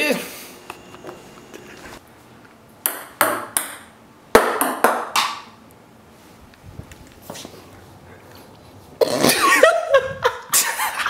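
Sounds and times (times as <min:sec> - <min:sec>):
ping-pong ball bouncing on tile: 0:02.8 - 0:05.3.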